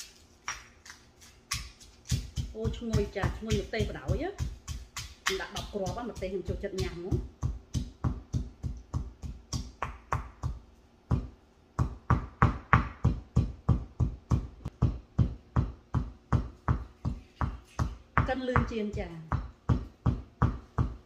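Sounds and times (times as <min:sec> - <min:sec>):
stone pestle pounding in mortar: 0:01.5 - 0:21.0.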